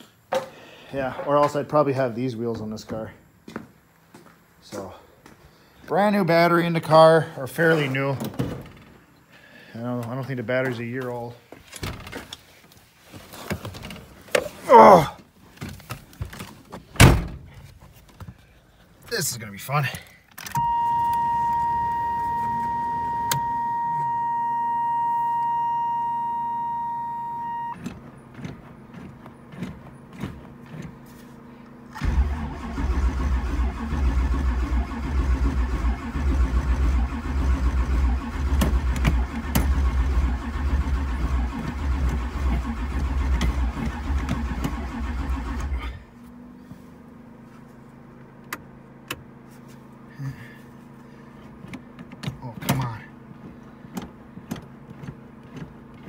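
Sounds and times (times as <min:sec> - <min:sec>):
electronic warning tone: 0:20.6 - 0:27.8
engine starter cranking: 0:31.9 - 0:46.0.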